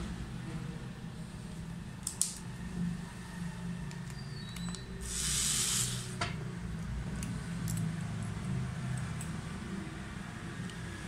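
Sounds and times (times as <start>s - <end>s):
hissing rustle: 5.0s - 6.2s.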